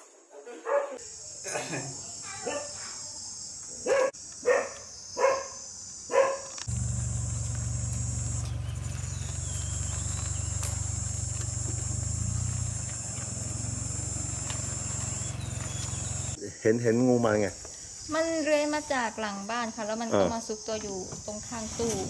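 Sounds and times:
dog barking: 0:00.5 - 0:01.0, 0:02.4 - 0:02.8, 0:03.8 - 0:06.5
high insect drone: 0:01.0 - 0:22.0.

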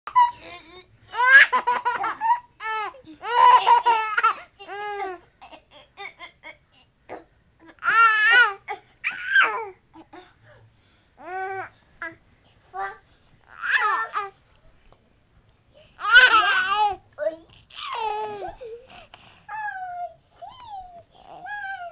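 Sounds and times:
baby laughing: 0:00.1 - 0:00.5, 0:01.1 - 0:05.2.

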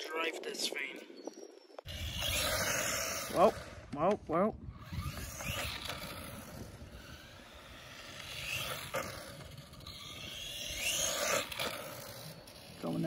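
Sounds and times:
rc truck motor whine: 0:01.9 - 0:03.9, 0:04.6 - 0:13.0
tyre noise on asphalt: 0:04.9 - 0:13.0.

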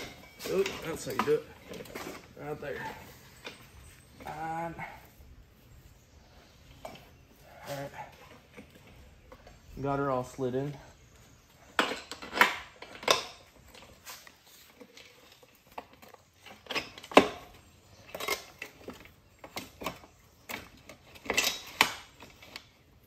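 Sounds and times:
metallic clinks and knocks: 0:00.0 - 0:02.4.

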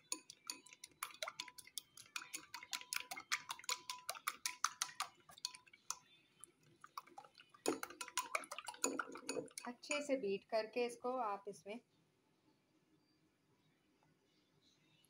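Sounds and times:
utensil tapping ceramic bowl: 0:00.0 - 0:06.0, 0:07.0 - 0:10.0.

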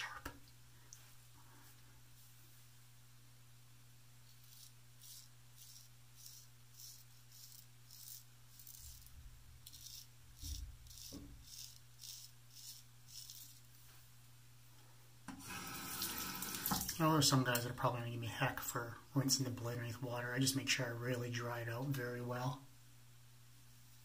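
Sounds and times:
straight razor scraping stubble: 0:04.3 - 0:13.7.

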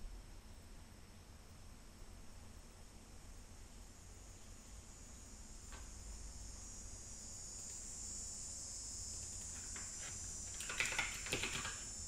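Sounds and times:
cicadas droning: 0:00.5 - 0:12.0
keyboard typing: 0:09.2 - 0:11.9.

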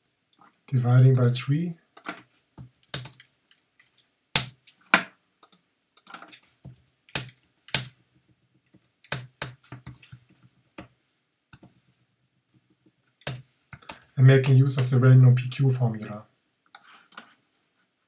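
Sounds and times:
typing on computer keyboard: 0:13.2 - 0:14.9.

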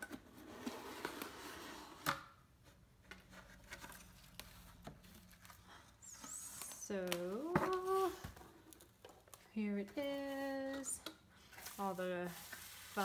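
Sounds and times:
cardboard rustling and scraping: 0:10.0 - 0:13.0
paper shred filler rustling: 0:11.6 - 0:13.0.

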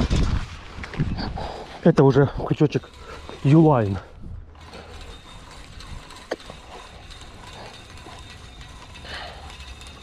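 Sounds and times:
fishing reel gears whirring: 0:02.2 - 0:10.0.

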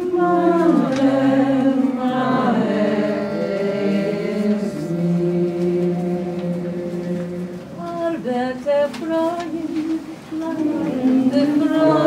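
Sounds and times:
voices singing slow song: 0:00.0 - 0:12.0.

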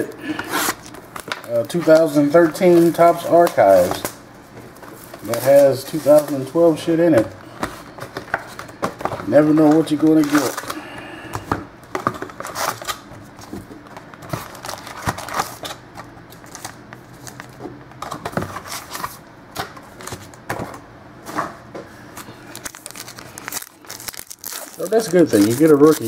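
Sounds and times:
cardboard and paper rustling: 0:04.8 - 0:10.8, 0:11.9 - 0:19.2, 0:22.2 - 0:26.0.

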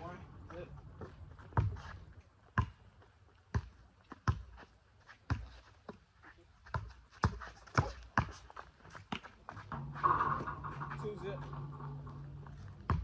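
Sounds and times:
basketball bouncing on court: 0:02.6 - 0:02.8, 0:03.5 - 0:04.5.

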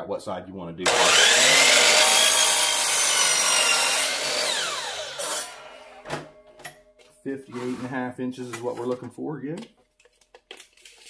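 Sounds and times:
miter saw cutting wood: 0:00.9 - 0:06.1.

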